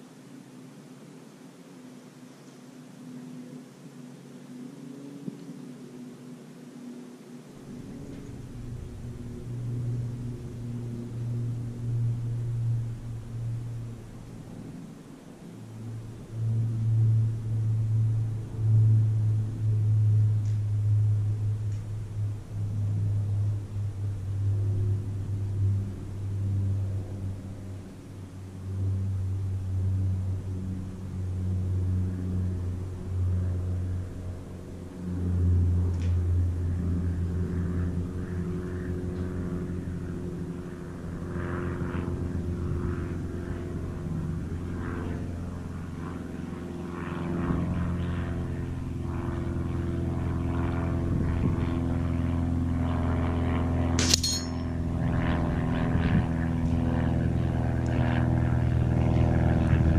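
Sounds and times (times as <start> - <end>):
steady engine drone: 0.0 - 59.9
pellet hitting steel target: 54.0 - 54.7.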